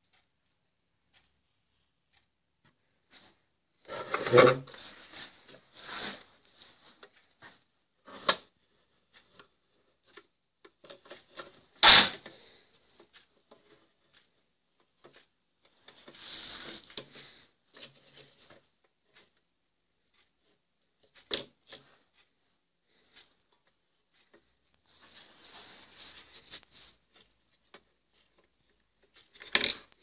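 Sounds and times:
rustling scrape: 0:03.1 - 0:08.9, 0:15.8 - 0:19.2, 0:24.9 - 0:30.0.

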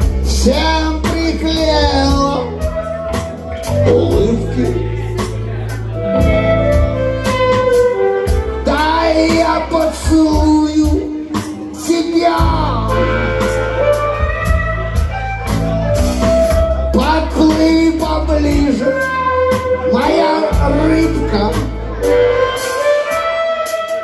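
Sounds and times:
man singing: 0:00.0 - 0:06.3, 0:08.6 - 0:14.2, 0:16.9 - 0:22.1
percussion: 0:00.0 - 0:21.8
bass guitar: 0:00.0 - 0:24.0
electric guitar: 0:00.0 - 0:24.0.

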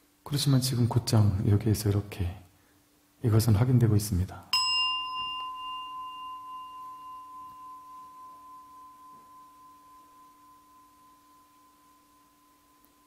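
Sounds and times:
meditation bell ringing: 0:04.5 - 0:13.0.

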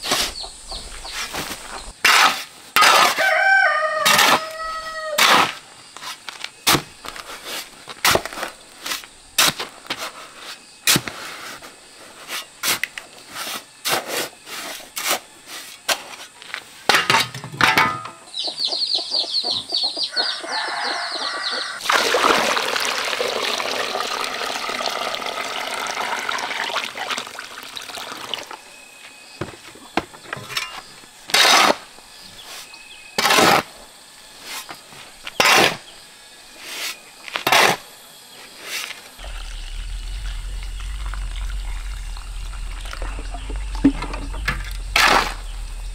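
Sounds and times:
shovel scraping concrete floor: 0:01.2 - 0:03.3, 0:04.0 - 0:11.6, 0:12.2 - 0:16.3, 0:30.4 - 0:31.9, 0:32.5 - 0:33.7, 0:35.4 - 0:35.8, 0:36.6 - 0:37.8, 0:44.0 - 0:45.9
chicks peeping: 0:18.3 - 0:21.8
water pouring: 0:21.8 - 0:28.7, 0:39.2 - 0:45.9.

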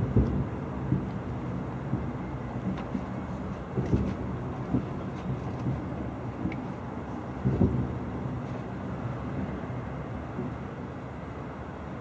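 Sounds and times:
steady low rumble: 0:00.0 - 0:12.0
firework booms: 0:07.3 - 0:08.4.

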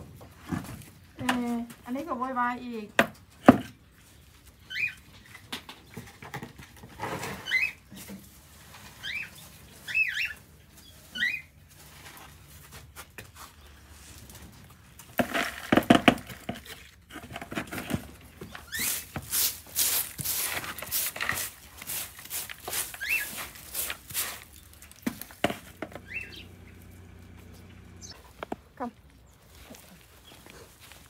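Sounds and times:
brush sweeping straw on concrete: 0:08.0 - 0:14.4, 0:18.5 - 0:28.2
high rising squeaks: 0:25.8 - 0:28.2.

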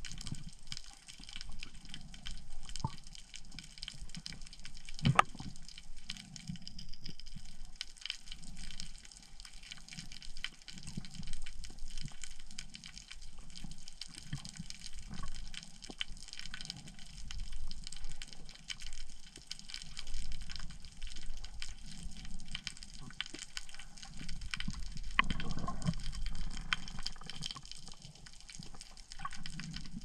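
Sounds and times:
underwater moving water: 0:00.0 - 0:30.0
sharp underwater clicks: 0:00.1 - 0:30.0.

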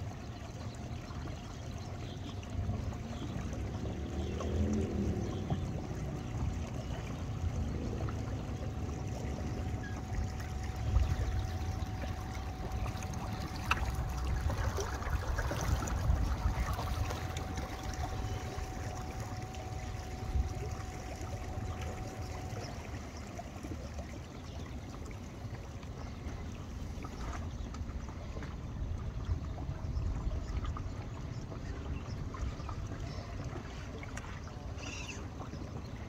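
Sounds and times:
faint steady tone: 0:00.0 - 0:27.3
small waves lapping: 0:00.0 - 0:36.0
wind buffeting the microphone: 0:13.1 - 0:18.2.

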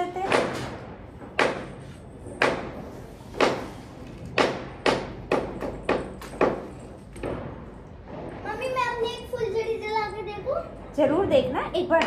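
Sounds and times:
sharp ringing knocks: 0:04.3 - 0:08.6.

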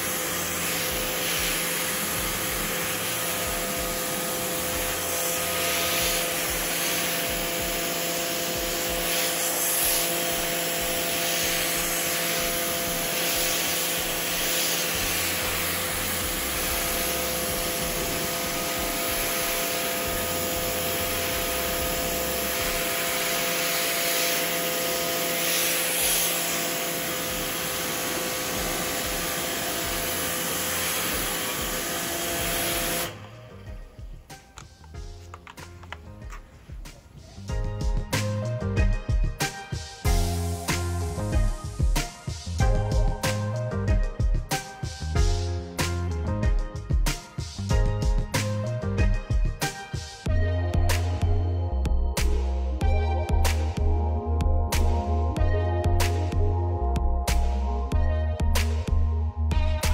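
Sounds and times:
pressure washer motor humming: 0:00.0 - 0:36.0
water jet hissing on carpet: 0:00.0 - 0:37.2.

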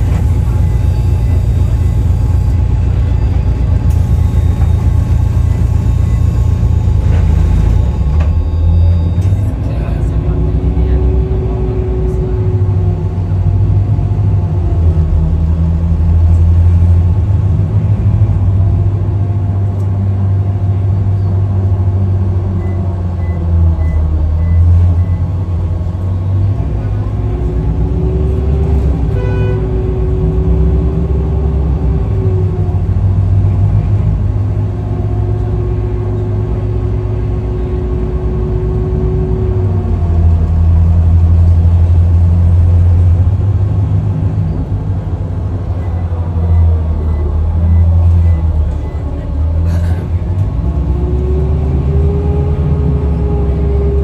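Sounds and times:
car engine and road noise: 0:00.0 - 0:54.0
short beep: 0:00.1 - 0:10.0.

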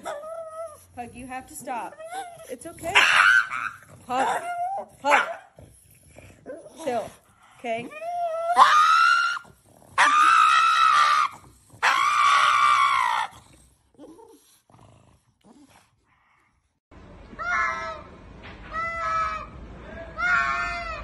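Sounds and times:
dog screaming: 0:01.9 - 0:05.4, 0:08.2 - 0:13.4, 0:17.3 - 0:18.1, 0:18.7 - 0:21.0
cats yowling: 0:08.2 - 0:13.3, 0:20.1 - 0:21.0.

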